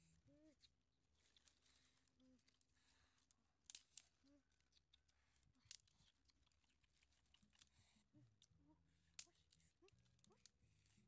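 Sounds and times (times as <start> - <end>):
dry sticks clicking: 3.7 - 5.0, 5.6 - 7.7.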